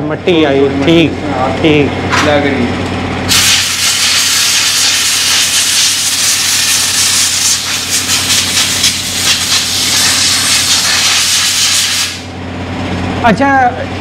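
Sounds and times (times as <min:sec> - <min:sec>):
compressed air hissing: 0:03.3 - 0:12.3.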